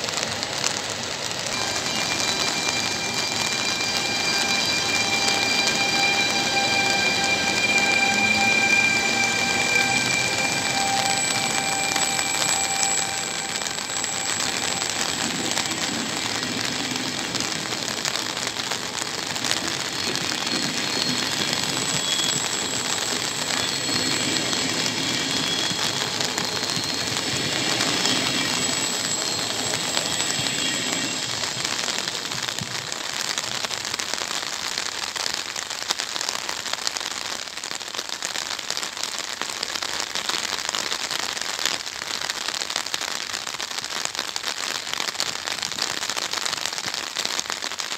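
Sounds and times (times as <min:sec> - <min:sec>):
train rumbling past: 0:00.0 - 0:33.6
heavy rain pattering: 0:00.0 - 0:47.9
high whining tones: 0:01.5 - 0:32.7.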